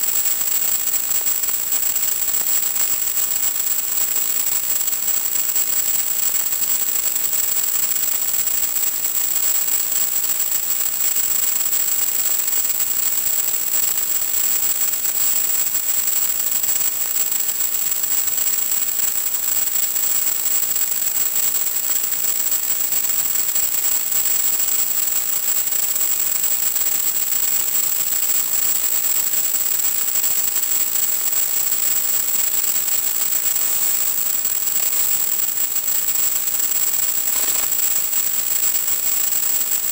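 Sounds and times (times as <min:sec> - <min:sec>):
static hiss: 0:30.6 - 0:39.9
thin high-pitched tone: 0:37.3 - 0:37.8.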